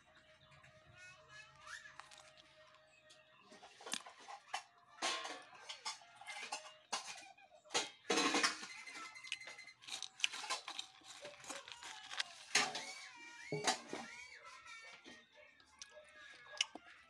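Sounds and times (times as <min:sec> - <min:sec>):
crabs clicking against metal bowl: 0:03.9 - 0:13.0.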